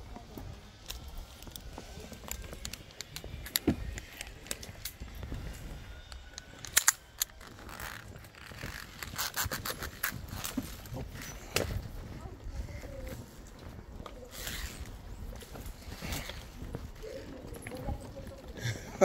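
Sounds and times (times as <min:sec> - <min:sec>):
metal clips clinking and scraping: 0:06.0 - 0:11.4
sharp metal clicks: 0:06.1 - 0:07.9.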